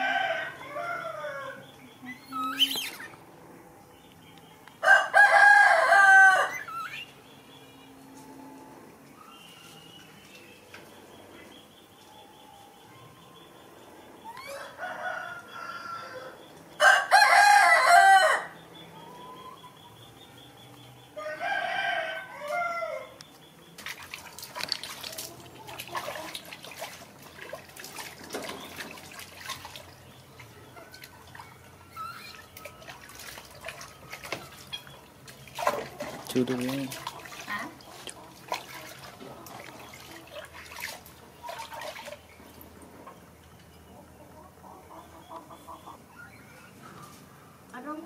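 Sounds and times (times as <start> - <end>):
animal calls: 1.3 - 3.2, 30.6 - 33.0
water splashing in a plastic tub: 23.8 - 42.8.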